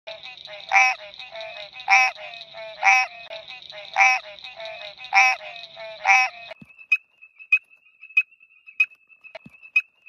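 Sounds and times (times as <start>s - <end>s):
background frog chorus: 0.1s - 9.9s
frog honking call: 0.4s - 6.6s.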